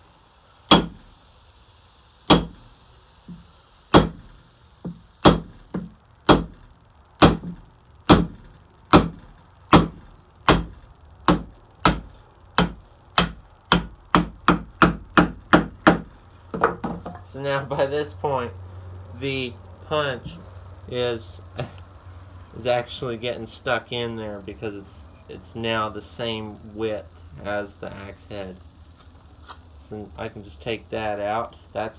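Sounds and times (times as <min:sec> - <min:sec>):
hammer striking steel punch: 0:00.7 - 0:01.1, 0:02.3 - 0:06.6, 0:07.2 - 0:16.8.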